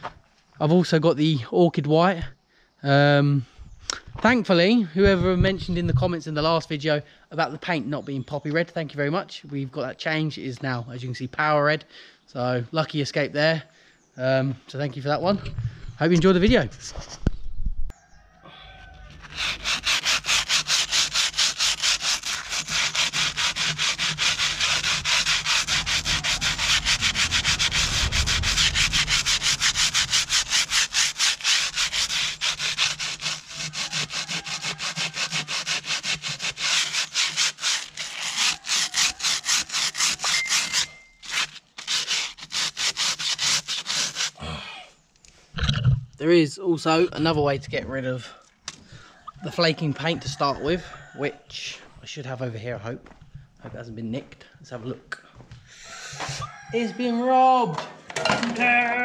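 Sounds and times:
sandpaper rubbing on metal rim: 0:19.1 - 0:44.4.

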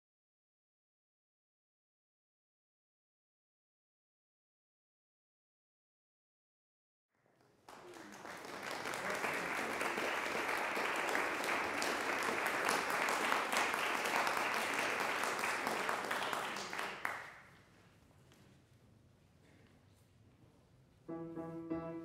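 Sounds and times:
audience applauding: 0:07.4 - 0:17.4.

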